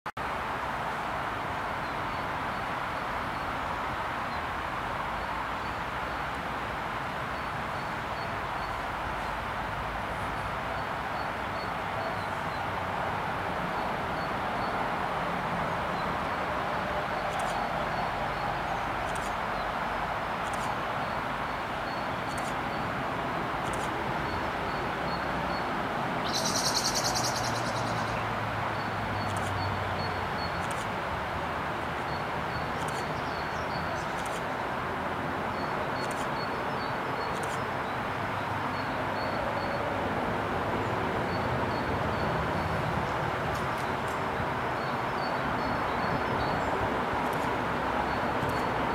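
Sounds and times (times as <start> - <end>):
small birds chirping: 23.6 - 30.9, 32.0 - 34.5.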